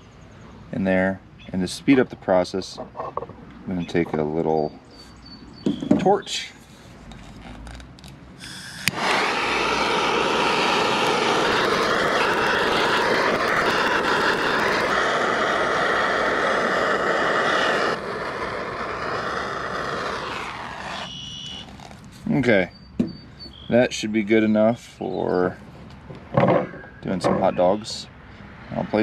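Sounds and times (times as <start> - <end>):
gas torch flame blowing: 6.7 - 22.2
gas torch ignition click: 8.4 - 21.6.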